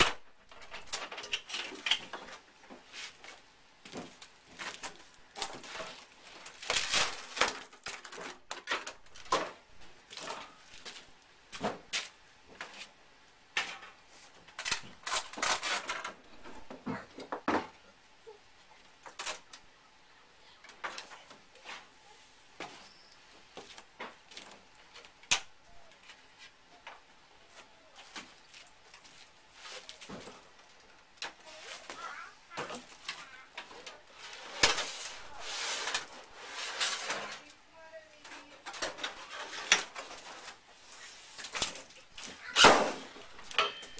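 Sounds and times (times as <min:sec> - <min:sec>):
hands handling materials: 0:20.7 - 0:43.9.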